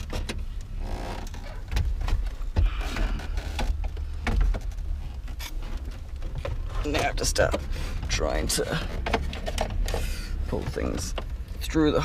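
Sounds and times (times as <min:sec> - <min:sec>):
casing knocking against plastic dash: 0:01.2 - 0:10.0.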